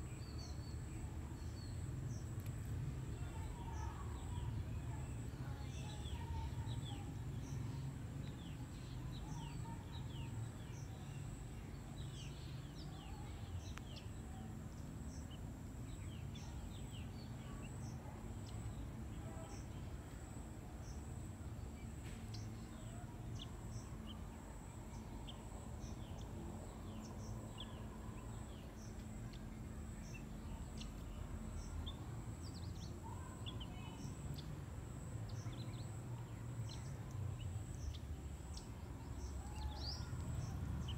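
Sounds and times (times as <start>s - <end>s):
small birds chirping: 0.0s - 40.9s.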